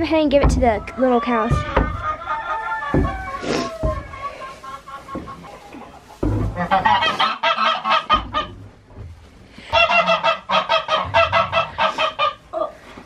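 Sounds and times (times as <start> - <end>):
poultry harsh calls: 1.1 - 8.5, 9.6 - 12.6.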